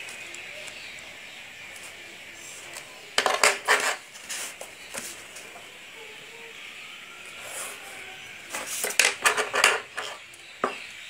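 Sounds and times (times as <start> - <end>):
drawing instruments knocking and rattling: 3.2 - 4.0, 8.5 - 10.8.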